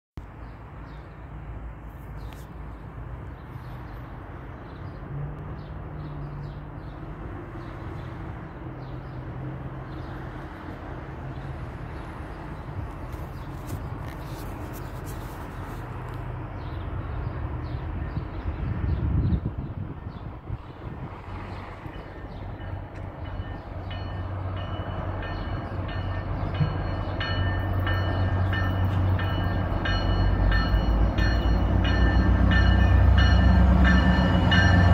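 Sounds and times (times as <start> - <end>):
distant diesel locomotive drone: 0.2 - 34.9
birds chirping: 21.5 - 34.9.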